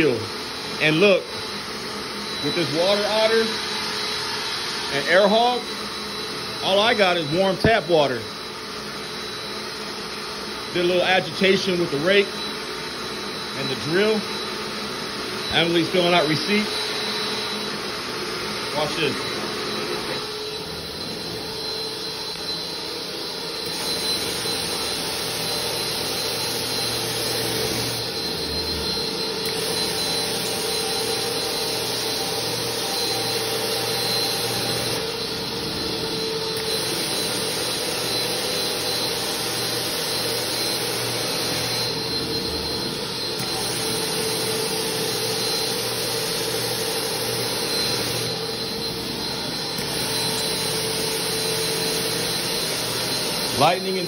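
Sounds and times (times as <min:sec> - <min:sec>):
carpet extractor vacuum suction: 0:00.0 - 0:54.0.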